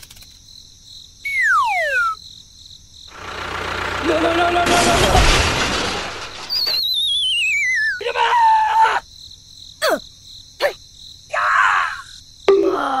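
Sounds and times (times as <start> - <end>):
falling wavering whistle: 6.8 - 8.0.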